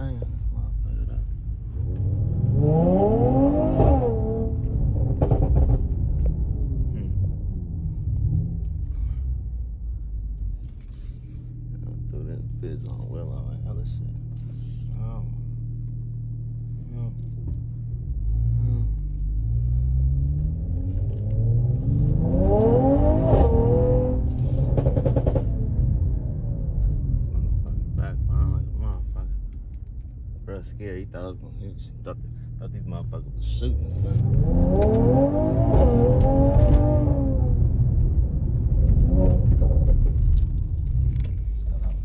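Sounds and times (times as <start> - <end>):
car engine rumbling in cabin: 0.0 - 42.0
engine crackle: 33.5 - 42.0.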